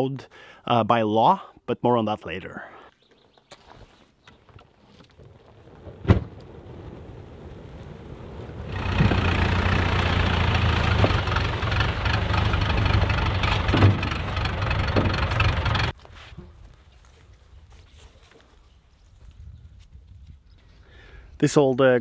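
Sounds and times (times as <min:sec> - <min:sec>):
tractor engine running: 0:07.4 - 0:16.0.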